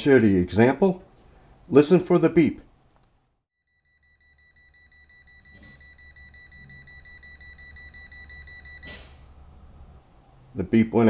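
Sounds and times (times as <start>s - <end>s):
voltage tester beeping rapidly: 3.6s - 9.1s.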